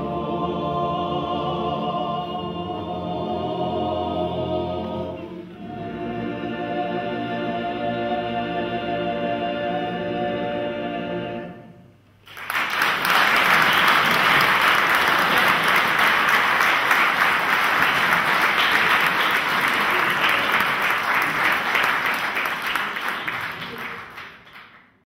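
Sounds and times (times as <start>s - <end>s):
male choir singing chord: 0.0s - 11.9s
audience applause: 12.3s - 24.9s.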